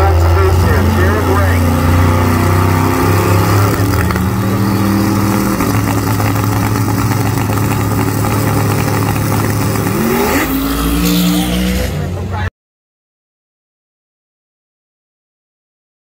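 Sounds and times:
engine revving up at launch: 0.0s - 12.5s
engines idling: 0.0s - 12.5s.

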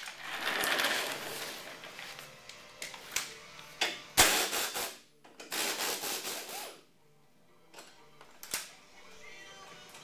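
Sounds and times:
scraping and rubbing of parts: 0.0s - 3.3s.

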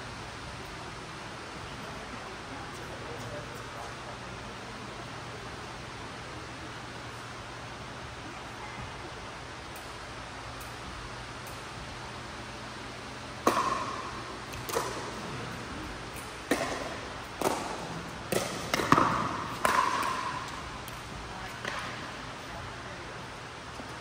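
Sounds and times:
paddles hitting plastic ball: 13.4s - 15.4s, 16.1s - 22.2s.

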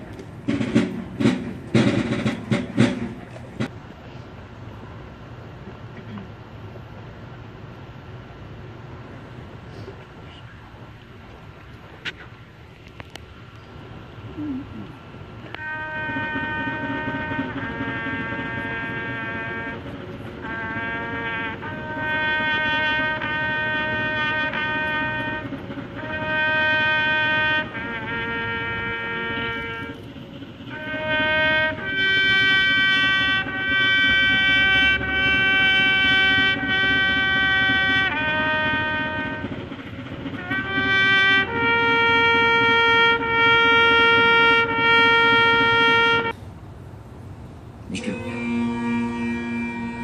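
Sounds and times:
solo bugle call: 15.4s - 46.4s, 47.9s - 50.0s.

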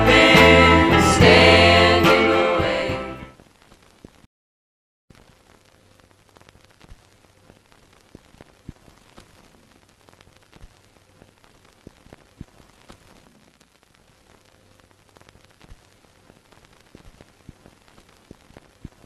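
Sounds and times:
static hiss: 0.0s - 4.3s, 5.1s - 19.0s
static clicks and pops: 3.3s - 4.3s, 5.1s - 19.0s.

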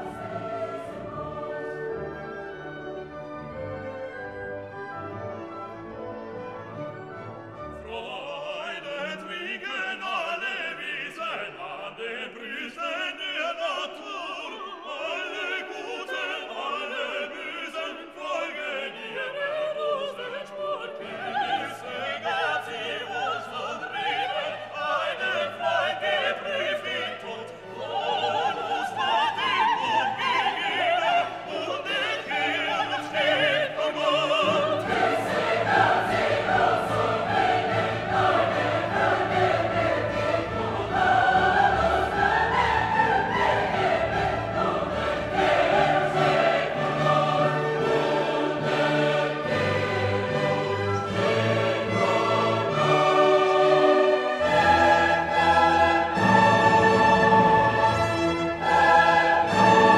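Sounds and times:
choir singing: 0.0s - 59.9s
operatic singing with orchestra: 0.0s - 59.9s.

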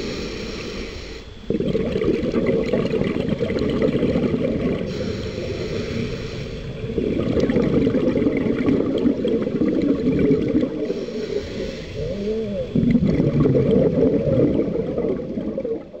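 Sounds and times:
regulator hiss on inhalation: 0.0s - 1.6s, 4.7s - 6.9s, 9.5s - 12.8s
gurgle of exhaled bubbles: 1.4s - 5.6s, 6.6s - 16.0s.

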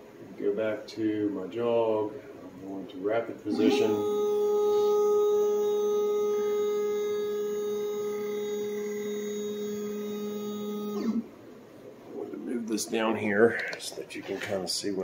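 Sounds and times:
stepper motors whining: 3.6s - 11.3s.

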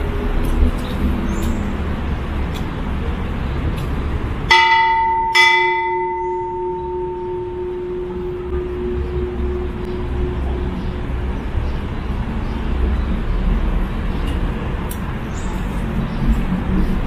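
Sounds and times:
large temple bell ringing: 4.5s - 12.2s.

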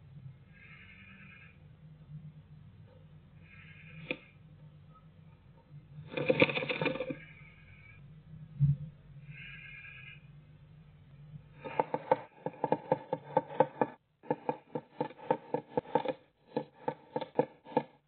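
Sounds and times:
bird scratching on wooden floor: 6.0s - 7.4s, 11.6s - 18.0s.

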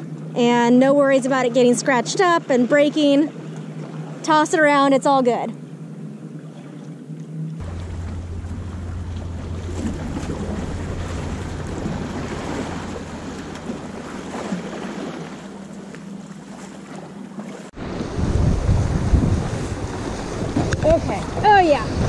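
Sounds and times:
wind buffeting microphone: 7.6s - 16.3s, 17.8s - 22.0s
surf washing against rocks: 7.6s - 22.0s.

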